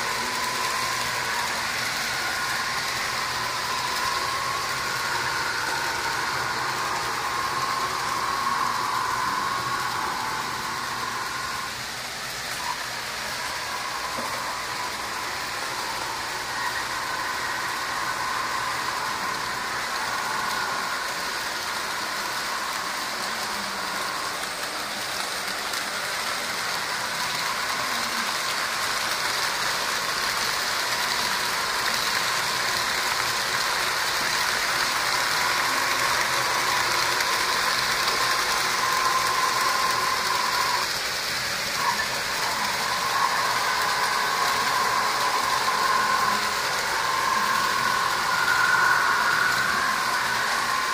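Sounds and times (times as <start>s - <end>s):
faint whine: 0.0s - 50.9s
model train whirring on track: 0.0s - 50.9s.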